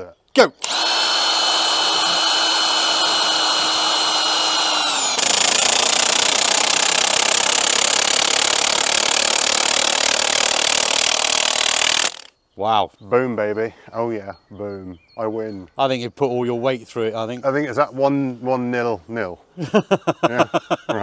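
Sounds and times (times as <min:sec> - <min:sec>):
impact wrench hammering: 0:00.6 - 0:12.3
impact wrench motor whine: 0:00.6 - 0:12.3.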